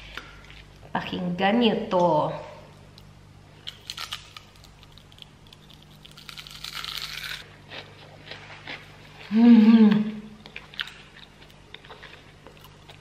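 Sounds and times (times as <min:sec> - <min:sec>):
crunching bites into fried chicken: 0:03.7 - 0:07.4.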